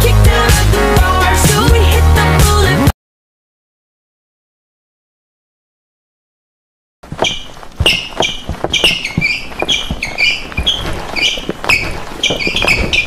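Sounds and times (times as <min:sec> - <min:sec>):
feet stomping on hard floor: 0:07.0 - 0:13.0.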